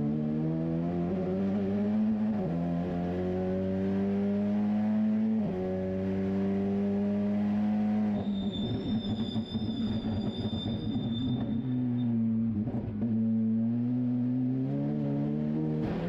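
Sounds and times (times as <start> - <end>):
race car engine: 0.0 - 9.2, 11.4 - 16.0.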